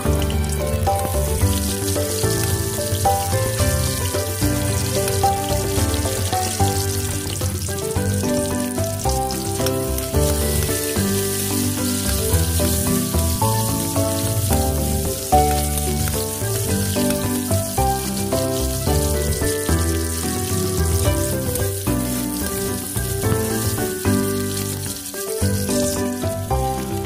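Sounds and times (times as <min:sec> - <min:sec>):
food sizzling in hot oil: 0:00.0 - 0:27.0
instrumental background music: 0:00.0 - 0:27.0.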